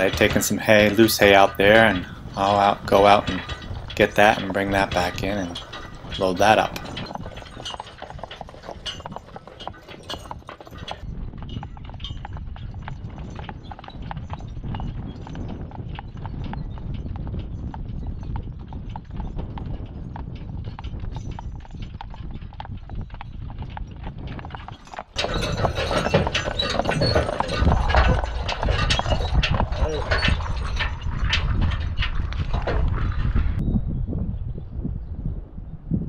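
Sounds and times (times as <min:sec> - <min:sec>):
horse hooves clip-clopping on pavement: 0:00.0 - 0:33.6.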